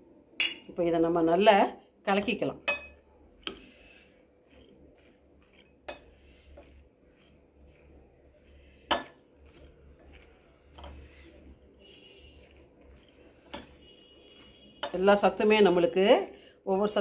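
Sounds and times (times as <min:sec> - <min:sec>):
spoon knocking glass bowl: 0:02.2 - 0:03.0
salad rustling in bowl: 0:03.1 - 0:17.0.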